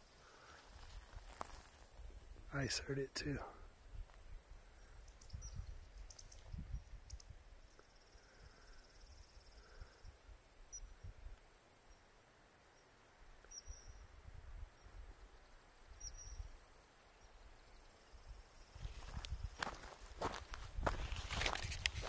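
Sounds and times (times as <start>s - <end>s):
high insect hum: 0.0s - 22.0s
footsteps crunching dry grass: 0.4s - 1.9s, 18.7s - 22.0s
wind rumble on microphone: 3.9s - 7.6s, 18.8s - 22.0s.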